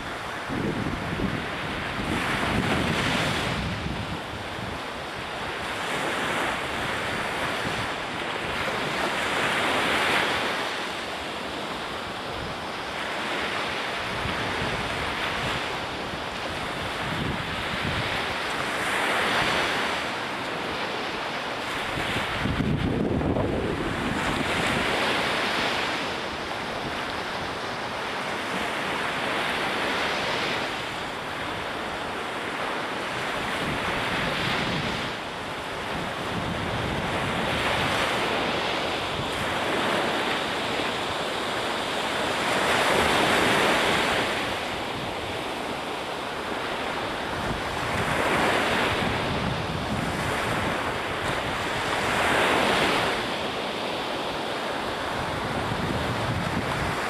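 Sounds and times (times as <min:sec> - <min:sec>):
wind buffeting microphone: 0:00.0 - 0:10.7, 0:11.7 - 0:53.3, 0:54.8 - 0:57.0
ocean surf breaking: 0:00.0 - 0:57.0.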